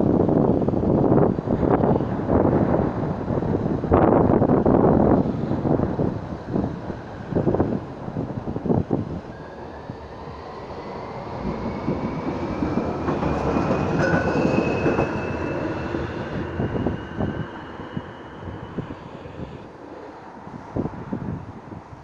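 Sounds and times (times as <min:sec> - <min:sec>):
tram running on tracks: 0:00.0 - 0:22.0.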